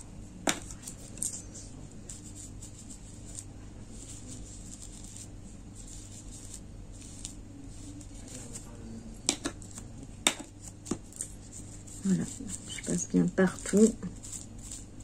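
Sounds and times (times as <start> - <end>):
low steady hum: 0.0 - 15.0
faint brushing ticks: 0.6 - 9.9, 10.6 - 15.0
paintbrush knocking on pot rim: 9.2 - 12.7.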